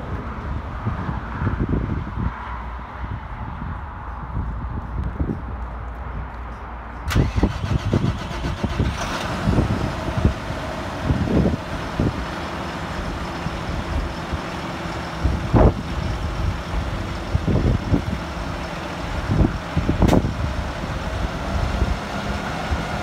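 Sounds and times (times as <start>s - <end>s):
tractor diesel engine idling: 7.0s - 23.0s
low engine thumps: 20.0s - 20.4s.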